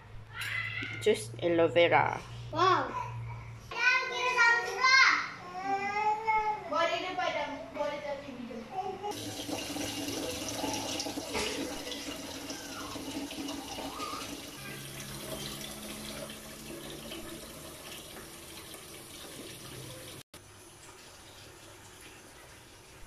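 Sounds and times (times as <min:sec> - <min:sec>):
water running into a saucepan: 0:09.1 - 0:23.0.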